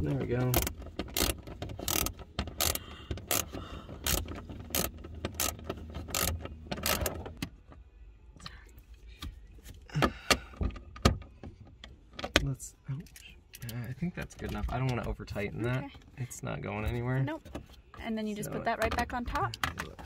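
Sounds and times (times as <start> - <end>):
ratchet pawl clicking: 0.5 - 7.2.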